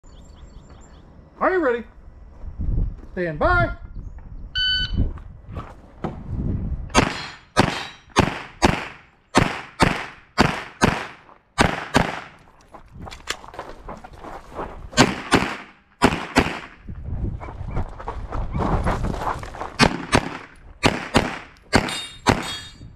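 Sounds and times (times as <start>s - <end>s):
shot timer beep: 4.6s - 5.0s
pistol shots: 7.0s - 12.4s, 15.0s - 16.8s, 19.8s - 22.7s.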